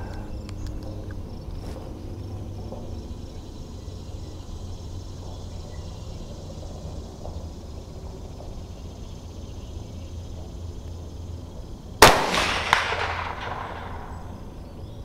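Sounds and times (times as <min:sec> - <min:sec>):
rifle shot echoing: 0:12.0 - 0:14.9.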